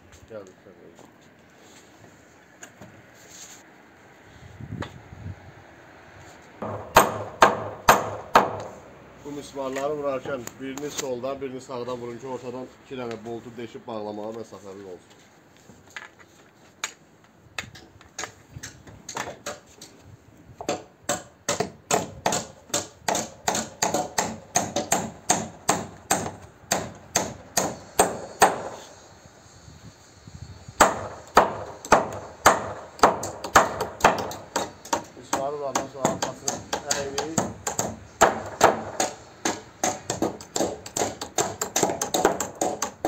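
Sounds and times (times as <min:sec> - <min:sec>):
hammer driving nails into timber: 0:06.6 - 0:08.8, 0:20.6 - 0:28.8, 0:30.8 - 0:43.0.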